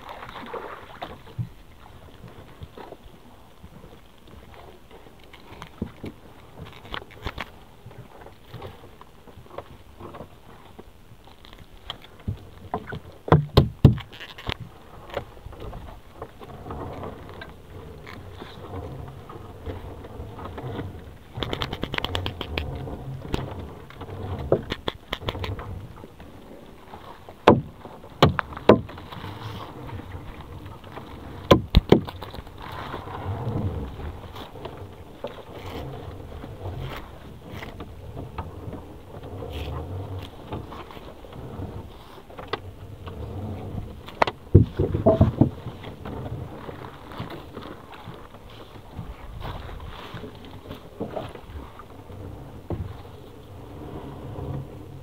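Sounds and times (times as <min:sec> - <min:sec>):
low rumbling background: 0:00.0 - 0:55.0
knocks against boat: 0:12.2 - 0:14.2, 0:27.4 - 0:29.0, 0:31.4 - 0:32.2, 0:44.2 - 0:46.2
wet net rustling and scraping: 0:26.9 - 0:54.9.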